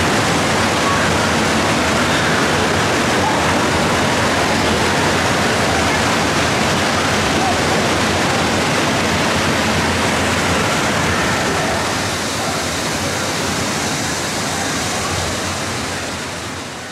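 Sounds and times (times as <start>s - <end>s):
rushing falling water: 0.0s - 16.9s.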